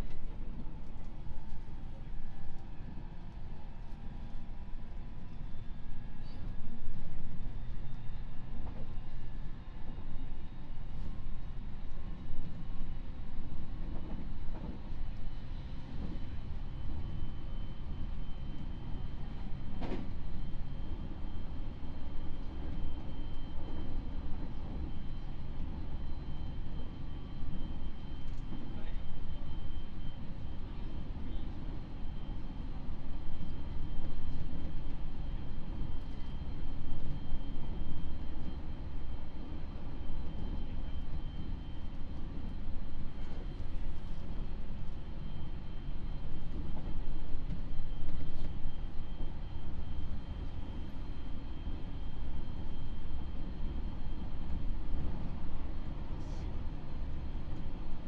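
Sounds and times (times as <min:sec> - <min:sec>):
train wheels rumbling on rail: 0:00.0 - 0:26.8
faint high whine: 0:16.4 - 0:58.0.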